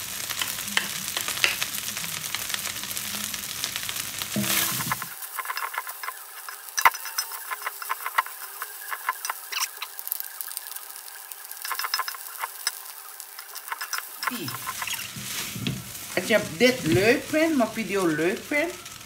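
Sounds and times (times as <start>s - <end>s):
rice sizzling in a wok: 0.0s - 19.0s
spatula scraping a wok: 4.3s - 19.0s.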